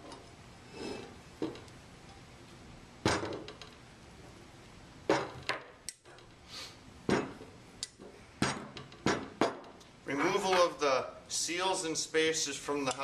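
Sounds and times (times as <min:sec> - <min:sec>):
metal knocking on wood: 0:08.4 - 0:09.8.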